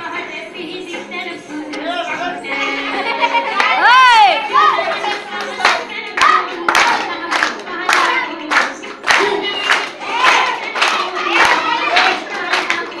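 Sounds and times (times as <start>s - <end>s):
voices singing together: 0.0s - 13.0s
hand claps: 5.1s - 13.0s.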